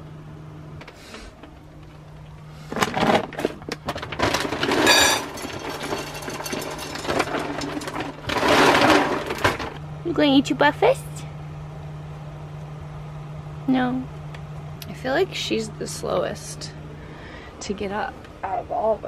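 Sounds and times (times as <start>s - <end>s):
plastic bag crinkling: 2.6s - 9.8s
kibble rattling into metal bowl: 2.8s - 9.8s.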